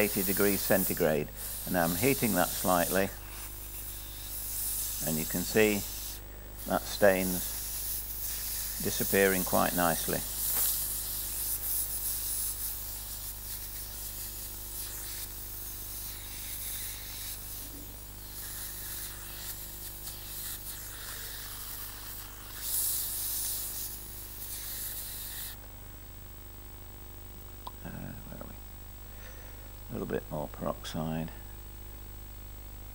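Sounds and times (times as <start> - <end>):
steam gun hissing: 0.0 - 25.6.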